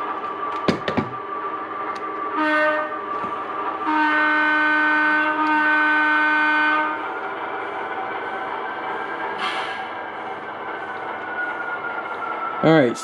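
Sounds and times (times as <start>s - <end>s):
model train horn: 2.3s - 3.0s, 3.8s - 7.0s.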